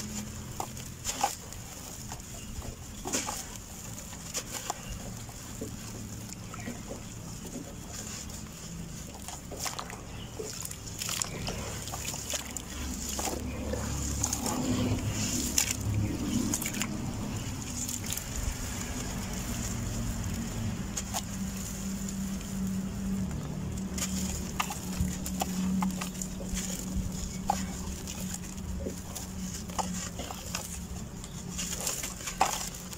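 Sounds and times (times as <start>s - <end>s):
hands squeezing mud in water: 0.0s - 32.9s
dirt crumbs pattering into water: 8.8s - 32.9s.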